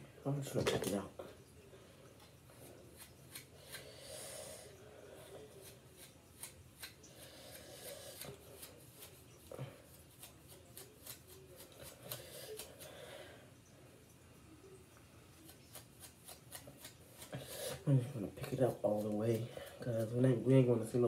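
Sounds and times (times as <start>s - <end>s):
hair pick raking through hair: 5.6s - 9.2s.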